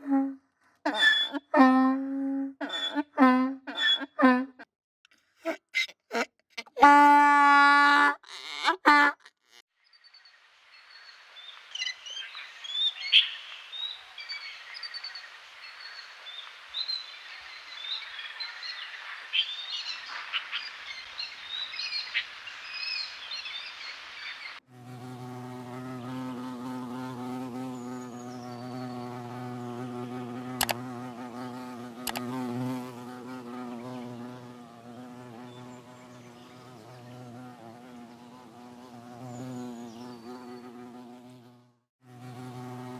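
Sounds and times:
bee buzzing: 0:24.7 - 0:42.9
birds chirping: 0:26.0 - 0:41.0
sharp clicks: 0:30.6 - 0:30.8, 0:32.0 - 0:32.3.

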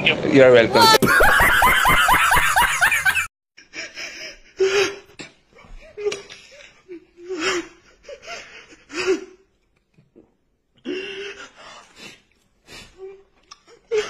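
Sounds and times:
man laughing: 0:00.8 - 0:03.3.

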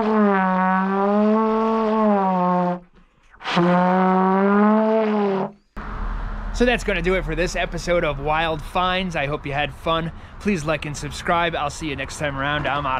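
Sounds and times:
trombone low held notes: 0:00.0 - 0:06.7.

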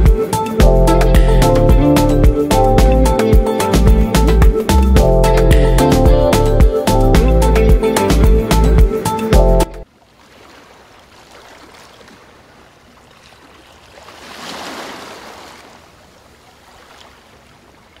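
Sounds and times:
sea waves washing on beach: 0:10.1 - 0:18.0.

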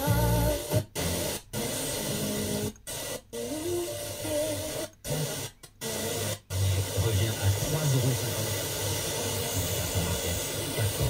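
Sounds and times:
faint distant radio stations: 0:00.0 - 0:11.0
radio static hiss: 0:00.0 - 0:11.0.

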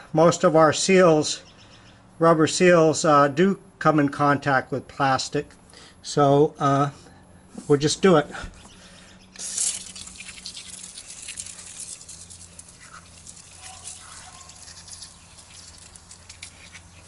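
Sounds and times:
aerosol can spraying: 0:09.4 - 0:17.0.

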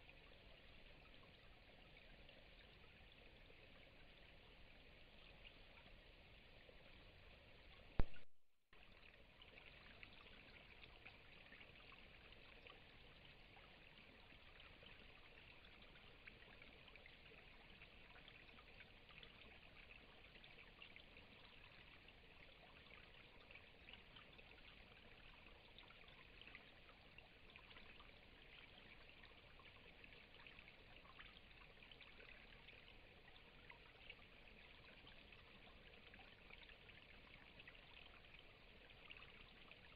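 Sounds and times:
faint hiss with crackle: 0:06.8 - 0:11.6
sharp click: 0:08.0 - 0:08.3.

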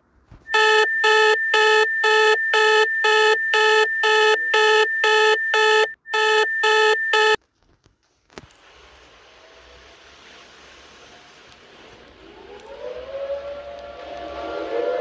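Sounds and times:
buzzy pulsing beeps: 0:00.5 - 0:07.4
steady high alert tone: 0:00.5 - 0:07.4.

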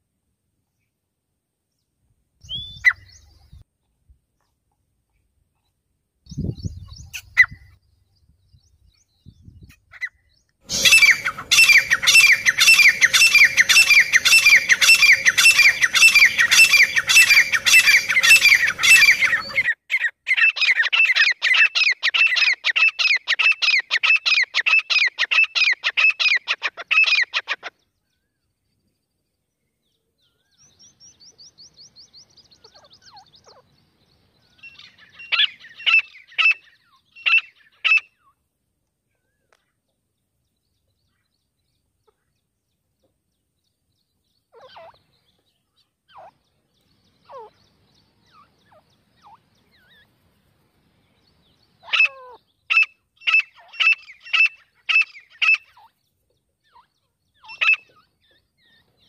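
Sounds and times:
francolin calling: 0:09.6 - 0:28.3, 0:30.2 - 0:38.3, 0:44.4 - 0:50.2, 0:51.0 - 0:56.0, 0:56.6 - 0:59.0.

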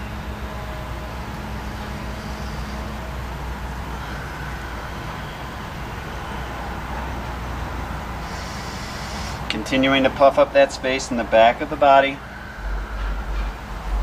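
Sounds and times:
steady low hum: 0:00.0 - 0:14.0
faint hiss: 0:08.2 - 0:13.1.

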